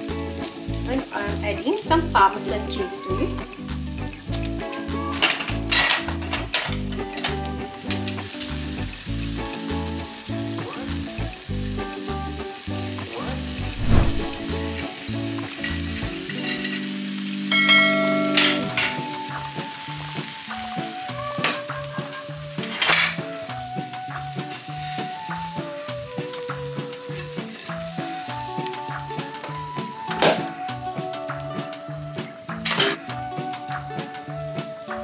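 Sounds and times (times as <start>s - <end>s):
background music with bass: 0.0s - 14.9s
batter sizzling in a frying pan: 0.0s - 35.0s.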